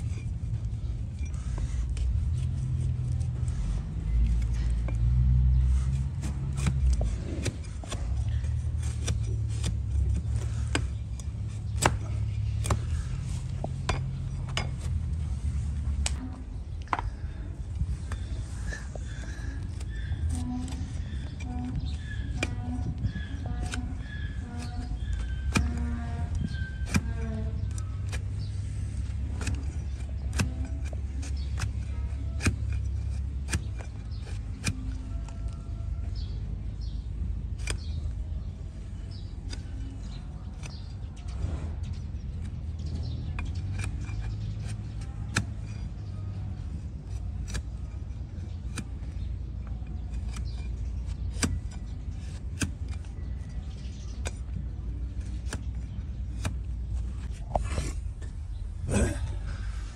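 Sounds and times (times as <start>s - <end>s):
low rumble: 0.0s - 53.6s, 55.2s - 59.9s
knife cracking through hoof: 23.2s - 35.0s, 37.4s - 38.0s, 47.0s - 58.1s.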